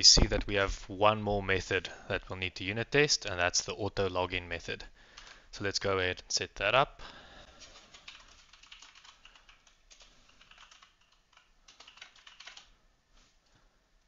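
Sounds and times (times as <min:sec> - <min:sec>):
faint typing on computer keyboard: 0:05.1 - 0:05.4, 0:07.6 - 0:12.8.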